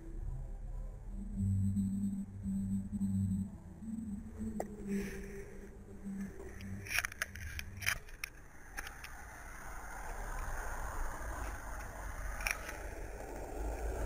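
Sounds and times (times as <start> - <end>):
low hum: 0.0 - 14.0
passing road traffic: 4.6 - 14.0
handling clicks and scrapes: 6.2 - 10.6, 11.3 - 14.0.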